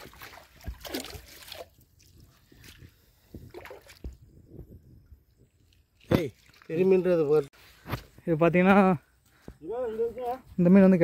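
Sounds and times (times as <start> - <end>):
water splashing and sloshing: 0.0 - 7.8.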